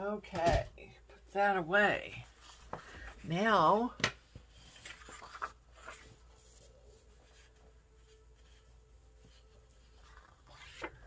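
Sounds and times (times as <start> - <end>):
paper rustling and scraping: 4.4 - 11.0.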